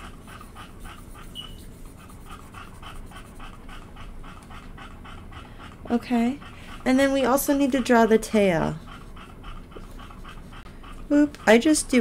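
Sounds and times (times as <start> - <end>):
animal panting: 0.0 - 12.0
high squeak: 1.3 - 1.7.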